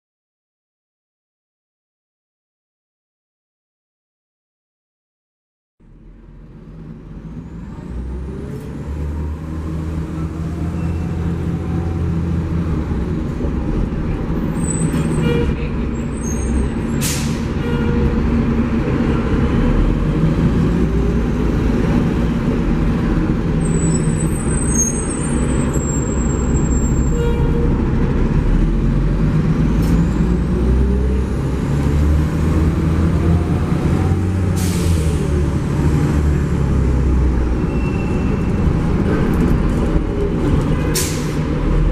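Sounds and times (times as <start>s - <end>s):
bus engine running: 5.8s - 41.9s
brief high squeal: 14.6s - 17.9s, 23.7s - 27.6s, 37.6s - 38.6s.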